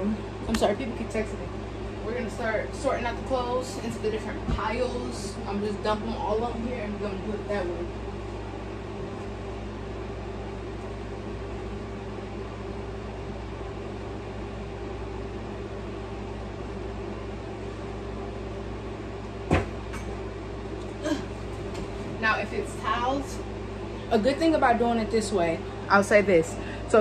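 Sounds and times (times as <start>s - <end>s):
steady machine hum: 0.0s - 27.0s.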